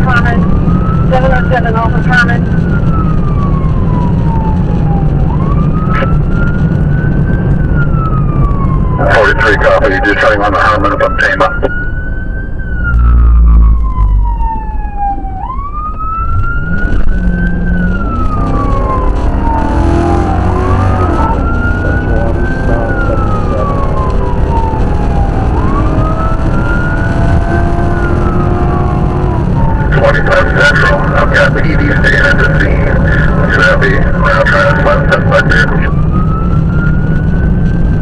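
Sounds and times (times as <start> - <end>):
police siren wailing: 0.0 - 38.0
car engine and tyres at speed: 11.7 - 38.0.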